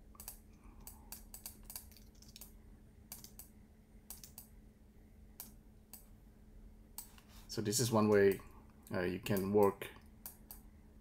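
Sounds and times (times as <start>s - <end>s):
steady low hum: 0.0s - 11.0s
keyboard typing: 0.2s - 2.5s, 3.1s - 3.5s, 4.1s - 4.5s.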